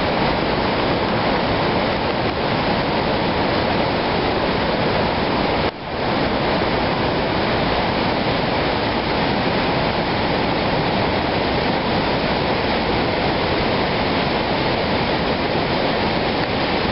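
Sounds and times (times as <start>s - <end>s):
whitewater rapids rushing: 0.0s - 16.9s.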